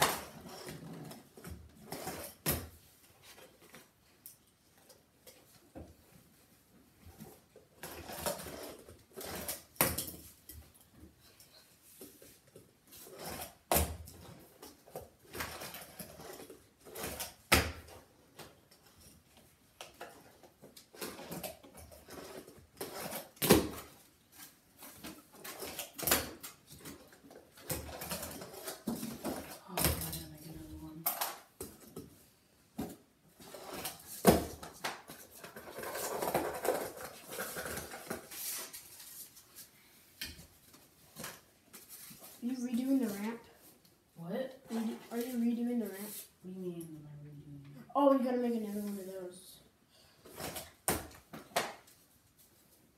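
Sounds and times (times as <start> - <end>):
small wheels rolling and scraping: 0.0 - 3.9, 7.0 - 10.8, 11.4 - 32.1, 33.3 - 39.4.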